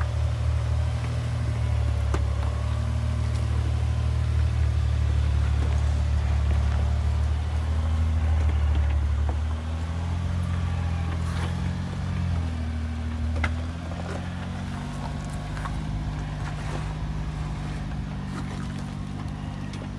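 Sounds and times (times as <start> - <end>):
truck engine running at low revs: 0.0 - 19.9.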